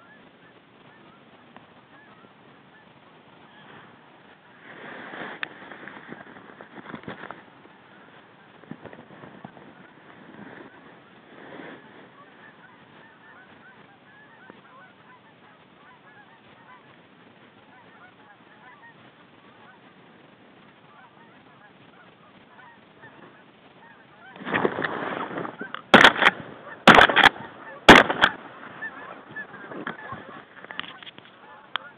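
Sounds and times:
geese honking: 0.0 - 31.9
shotgun shots: 25.9 - 28.4.

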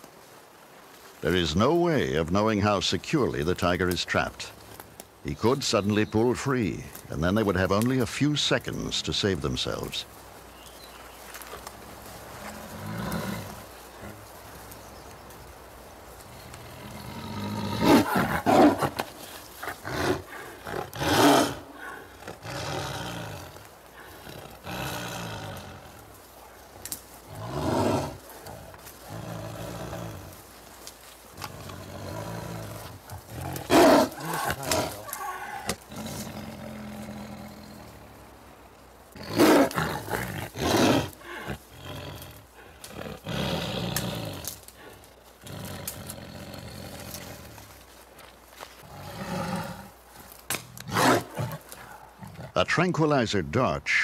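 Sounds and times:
tiger growling: 11.3 - 15.3, 16.1 - 53.8
tiger roaring: 12.4 - 14.2, 16.3 - 30.6, 31.4 - 38.3, 39.2 - 47.7, 48.8 - 52.7.

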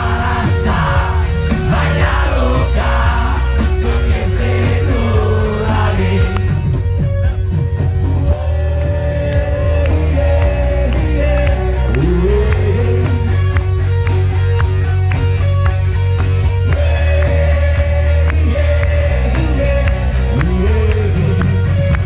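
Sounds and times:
male singer: 0.0 - 6.6, 8.2 - 13.6, 16.7 - 21.9
rock band playing: 0.0 - 22.0.

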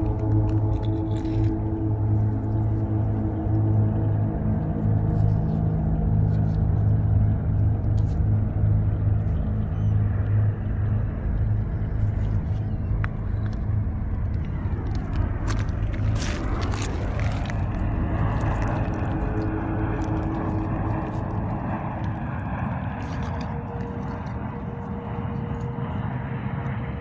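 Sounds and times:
low engine rumble: 0.0 - 27.0.

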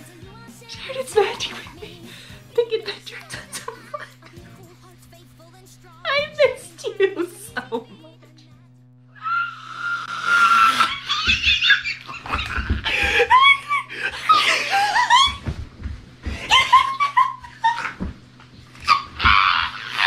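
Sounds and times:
person shrieking and laughing: 9.2 - 15.4, 16.4 - 18.0, 18.8 - 20.0.

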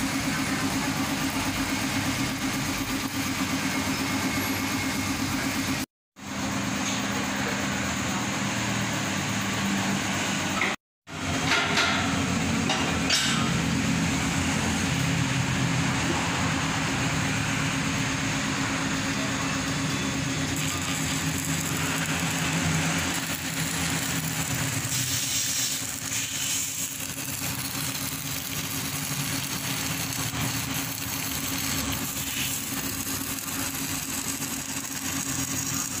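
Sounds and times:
welding arc crackling: 0.0 - 5.9, 18.8 - 36.0.

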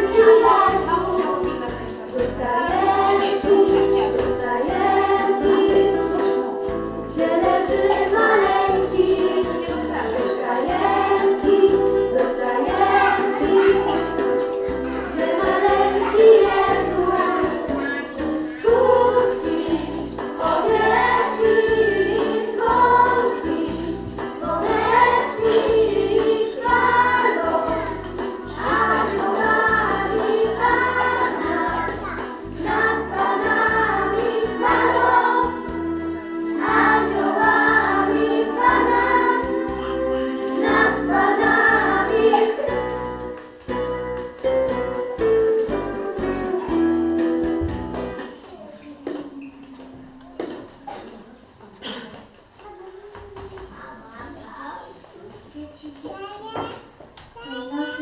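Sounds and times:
group singing carol: 0.0 - 17.8, 18.5 - 43.3
instrumental backing: 0.0 - 48.6.

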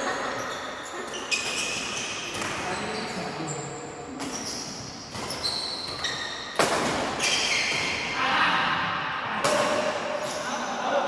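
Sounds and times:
shoes squeaking on tile: 0.0 - 8.0, 10.2 - 10.6
rackets hitting shuttlecock: 5.1 - 8.1.

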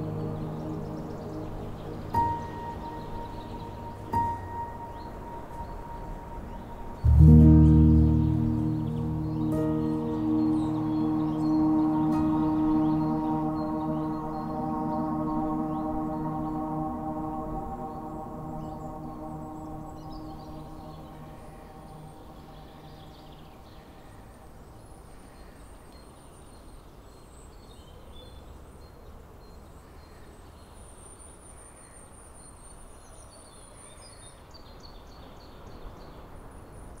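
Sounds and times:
faint bird chirps: 0.0 - 24.5
ringing gong-like tone: 7.0 - 23.2.

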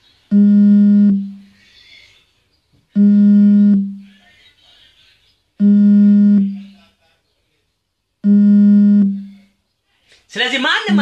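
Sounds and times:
low buzzy electronic beeps: 0.3 - 1.4, 3.0 - 4.1, 5.6 - 6.6, 8.2 - 9.4.

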